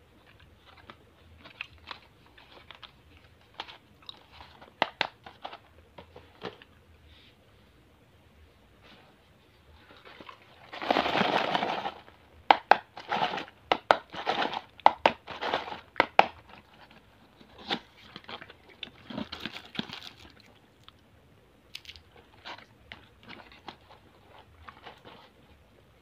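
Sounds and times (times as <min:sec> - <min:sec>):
cardboard box rustling and crackling: 0:09.8 - 0:12.1, 0:12.7 - 0:20.3.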